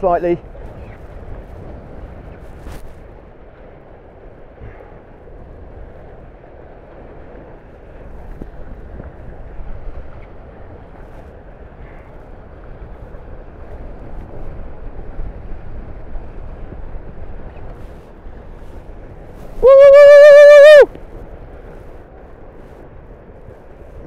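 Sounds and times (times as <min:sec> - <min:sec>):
water rushing past hulls: 0:00.0 - 0:24.0
wind buffeting microphone: 0:00.0 - 0:24.0.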